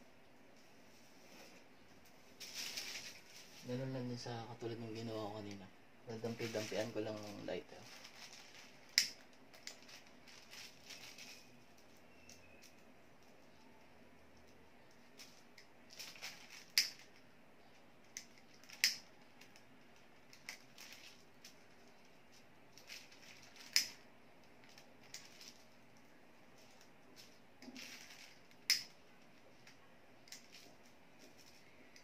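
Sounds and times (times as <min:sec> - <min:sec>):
paper kite rustling: 0:02.3 - 0:04.0, 0:06.2 - 0:12.0, 0:15.2 - 0:16.8, 0:26.6 - 0:28.5.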